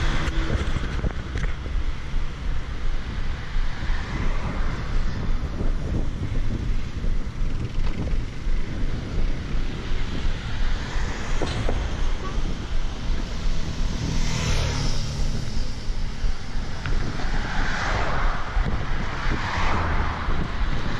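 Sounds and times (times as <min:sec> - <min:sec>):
road traffic: 0:00.0 - 0:20.9
wind on microphone: 0:00.0 - 0:20.9
motorcycle passing: 0:07.5 - 0:20.9.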